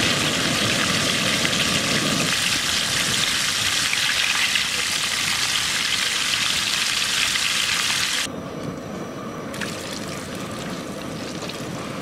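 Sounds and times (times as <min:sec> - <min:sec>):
fish deep-frying in hot oil: 0:00.0 - 0:08.3.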